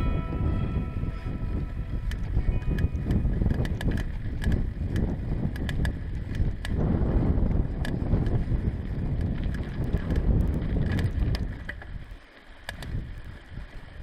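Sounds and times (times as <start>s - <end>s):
bike rattling clicks: 0.0s - 14.0s
bike rumbling over bumpy grass: 0.0s - 14.0s
wind on microphone: 0.0s - 14.0s
bike rolling over wooden planks: 0.3s - 14.0s.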